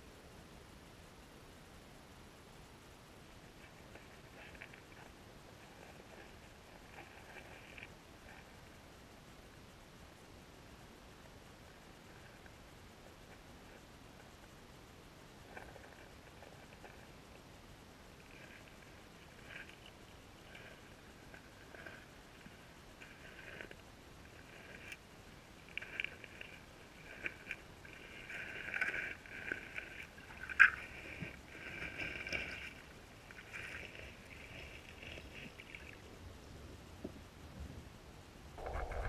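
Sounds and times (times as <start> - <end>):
underwater river current rushing: 18.2 - 36.1.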